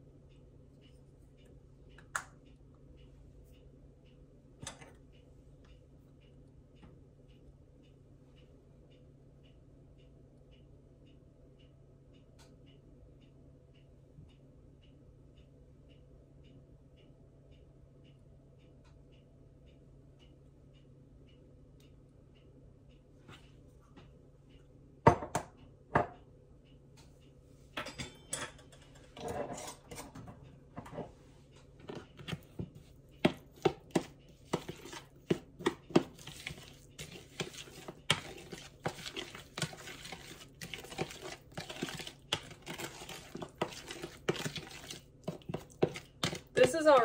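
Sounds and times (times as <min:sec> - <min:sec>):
spoon clinking and scraping bowl: 0:27.8 - 0:30.2, 0:31.9 - 0:46.9
metal spoon tapping a bowl: 0:33.2 - 0:46.9.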